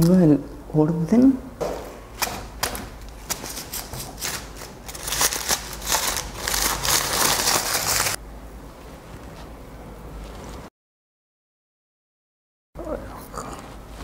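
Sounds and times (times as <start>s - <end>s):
paper crumpling: 3.1s - 8.2s.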